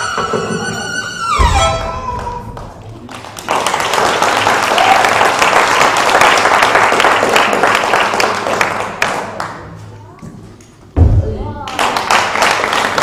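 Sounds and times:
audience applauding: 2.1 - 9.7, 11.6 - 13.0.

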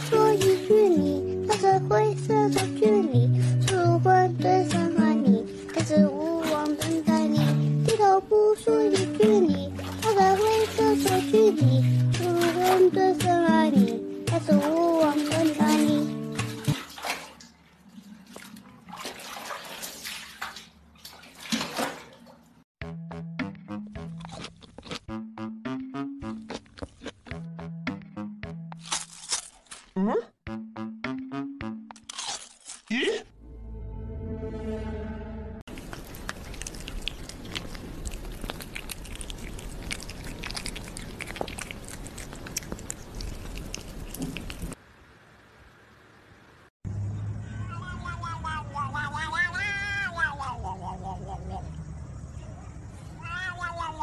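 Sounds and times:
music: 0.0 - 16.8, 22.8 - 26.7, 27.3 - 28.8, 30.4 - 32.0, 33.3 - 35.7
water splashing in plastic tub: 8.9 - 22.6
cat crunching dry kibble: 35.7 - 44.8.

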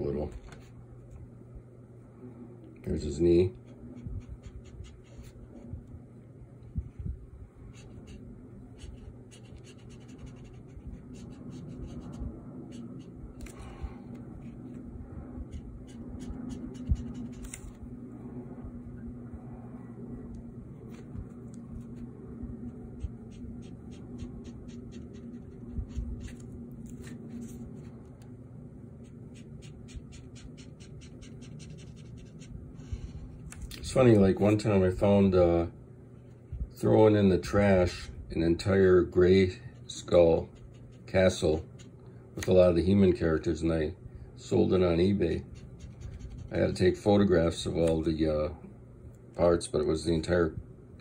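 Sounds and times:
low hum: 0.0 - 51.0
marker scratching on paper: 3.6 - 5.5, 7.7 - 13.1, 15.4 - 17.8, 23.0 - 27.9, 29.0 - 33.3, 39.8 - 42.5, 45.4 - 46.8.

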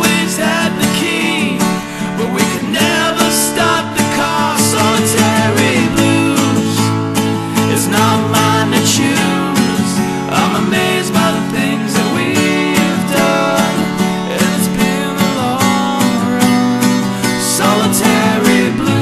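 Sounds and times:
bending guitar lead lines: 0.0 - 19.0
strummed acoustic guitar: 0.0 - 19.0
steady beat: 3.9 - 9.4.

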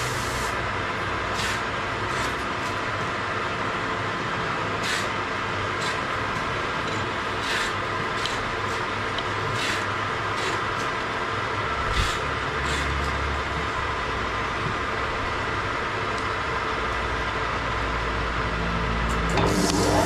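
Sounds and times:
sanding rasps: 1.3 - 2.5, 5.8 - 6.1, 7.4 - 8.8, 9.5 - 10.7
lathe motor humming: 19.2 - 20.0.

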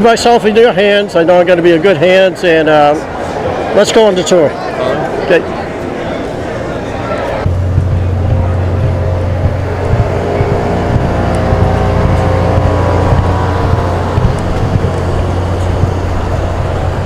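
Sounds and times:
low machinery hum: 7.2 - 17.0
low bumps: 7.4 - 17.0
faint higher tones: 7.5 - 17.0.

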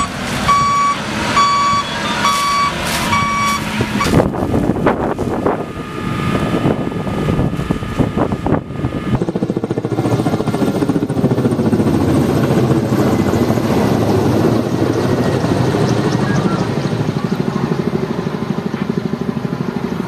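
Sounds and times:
steady high beeping tone: 0.0 - 8.9
engine noise and knocks: 0.0 - 20.0
helicopter rotors chopping: 0.0 - 20.0.

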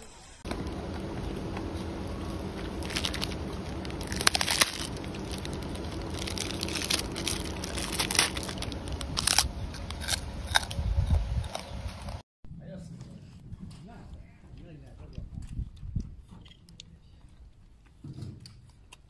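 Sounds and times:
plastic wrapper crinkling: 1.8 - 10.0
monkey crunching cracker: 2.6 - 12.2.

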